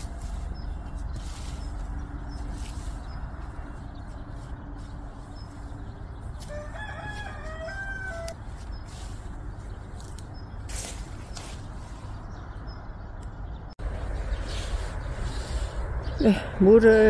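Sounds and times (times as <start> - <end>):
rooster crowing: 6.5 - 8.4.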